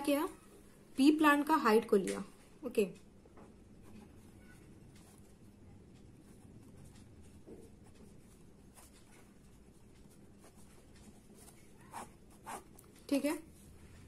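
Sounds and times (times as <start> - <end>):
pen scratching on paper: 6.2 - 12.8.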